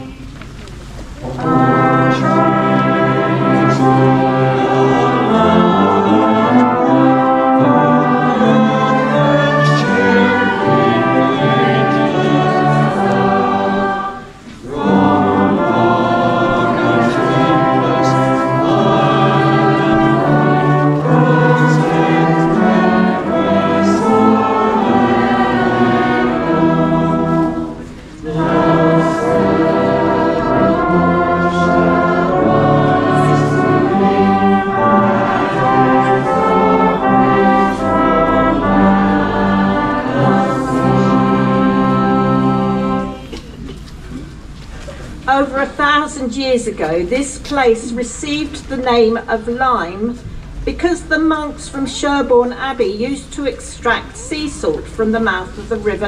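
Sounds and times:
brass band playing a hymn: 0:01.1 - 0:45.3
crowd singing along: 0:01.2 - 0:43.6.

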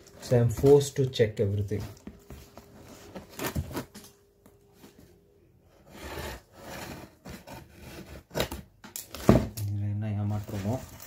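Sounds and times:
scissors scraping cardboard: 0:05.9 - 0:08.6.

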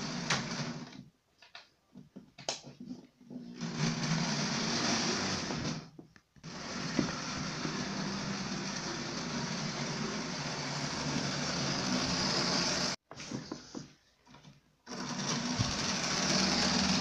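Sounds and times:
model locomotive motor whirring: 0:03.6 - 0:13.0, 0:14.9 - 0:17.0.

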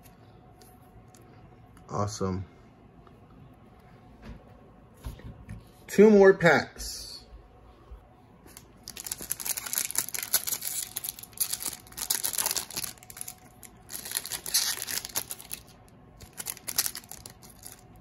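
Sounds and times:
foil wrapper tearing and crinkling: 0:08.5 - 0:18.0.

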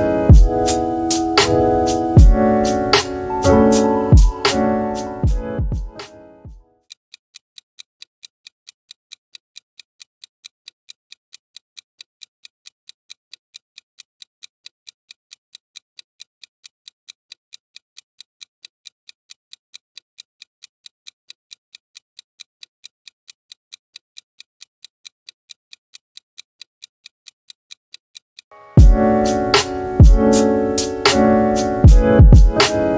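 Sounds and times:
clock ticking rapidly: 0:00.0 - 0:06.1, 0:28.4 - 0:32.9
piano music: 0:00.0 - 0:06.5, 0:28.8 - 0:32.9.

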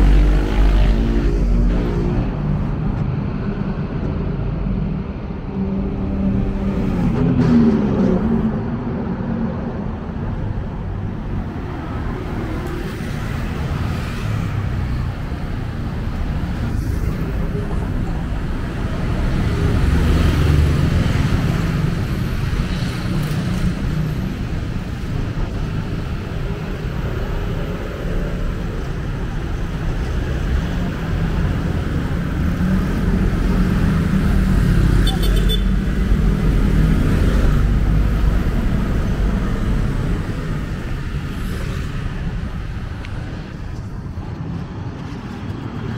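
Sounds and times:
road traffic rumble: 0:00.0 - 0:45.9.

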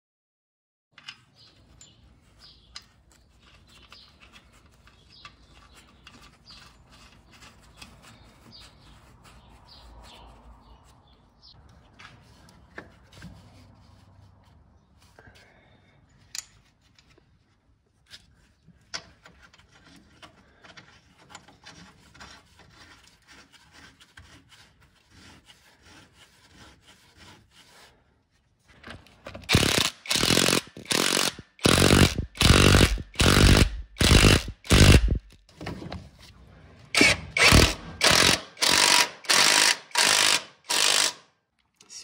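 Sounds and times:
hand tool strokes: 0:29.5 - 0:35.4.

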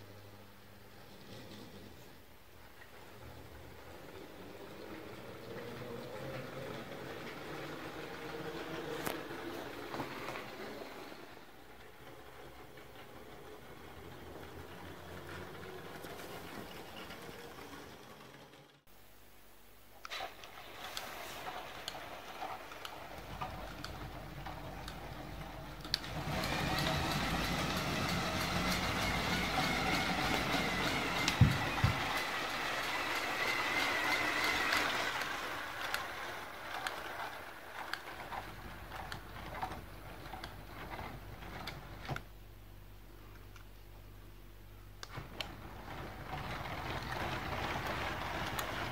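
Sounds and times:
wheels clicking on track: 0:02.8 - 0:18.9, 0:20.1 - 0:42.3, 0:45.0 - 0:48.9
toy train motor whine: 0:26.0 - 0:38.2.

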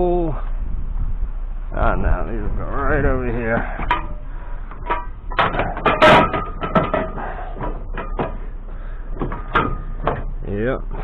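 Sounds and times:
scrap metal clanking: 0:02.7 - 0:11.0.

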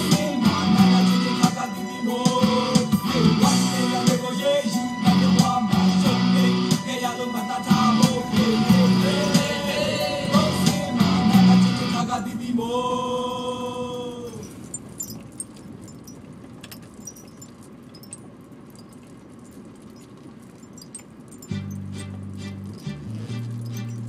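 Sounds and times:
song with singing: 0:00.0 - 0:14.5.

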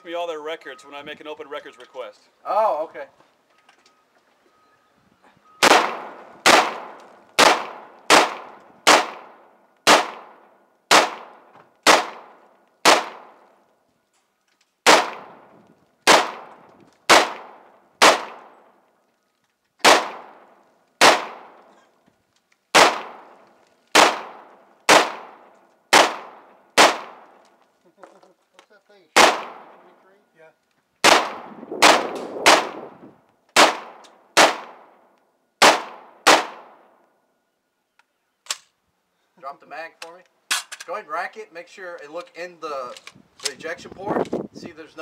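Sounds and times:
rifle shots echoing: 0:05.6 - 0:13.5, 0:14.8 - 0:18.8, 0:19.8 - 0:21.8, 0:22.7 - 0:27.4, 0:29.2 - 0:30.0, 0:31.0 - 0:33.0, 0:33.6 - 0:35.0, 0:35.6 - 0:37.0.

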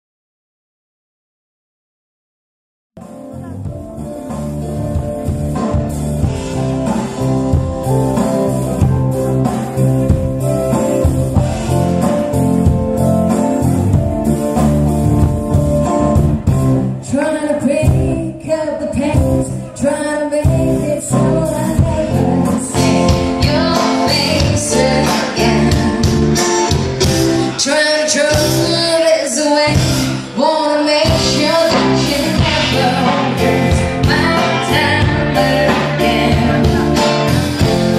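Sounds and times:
live band playing: 0:03.0 - 0:37.9
woman singing: 0:17.0 - 0:26.8, 0:27.5 - 0:37.7.

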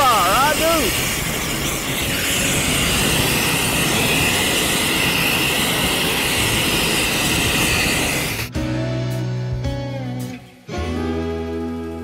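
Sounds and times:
propane torch roaring: 0:00.0 - 0:08.5
guitar music: 0:08.5 - 0:12.0.

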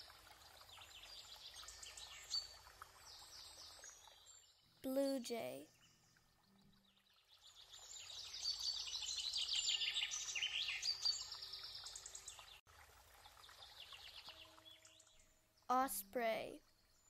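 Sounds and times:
wild birds chirping: 0:00.0 - 0:12.6, 0:13.2 - 0:17.0.

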